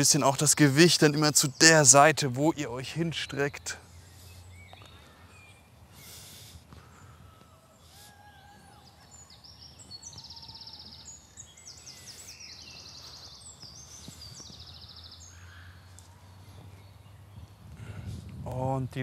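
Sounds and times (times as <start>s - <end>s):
songbirds trilling and whistling: 0.0s - 19.0s.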